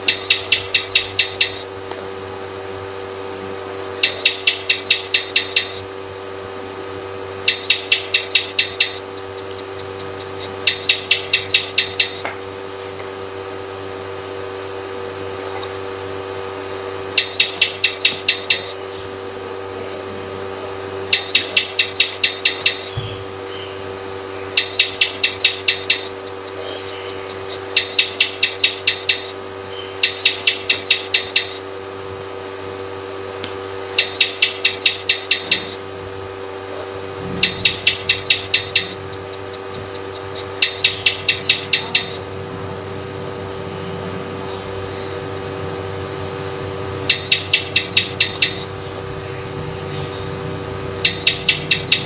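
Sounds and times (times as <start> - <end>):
lizard chirping clicks: 0.0 - 1.7, 4.0 - 5.9, 7.4 - 12.4, 17.1 - 19.0, 21.1 - 23.8, 24.4 - 31.6, 34.0 - 35.8, 37.2 - 42.3, 47.0 - 48.7, 51.0 - 52.0
steady background hum: 0.0 - 52.0.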